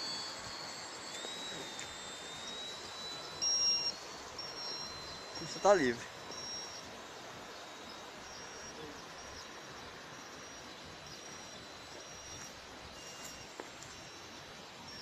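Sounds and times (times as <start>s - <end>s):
faint high-pitched chirp: 0.0s - 15.0s
outdoor background noise: 0.0s - 15.0s.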